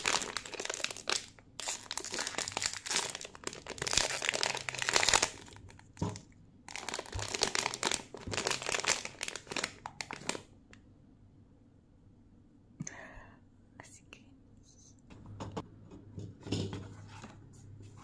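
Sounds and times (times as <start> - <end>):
foil wrapper tearing and crinkling: 0.0 - 5.9, 6.7 - 10.5.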